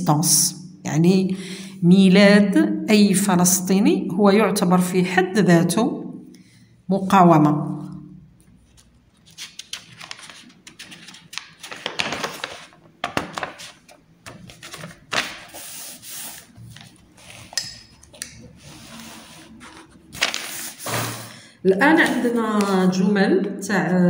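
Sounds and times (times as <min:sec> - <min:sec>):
paper pages rustling: 0:08.4 - 0:21.3.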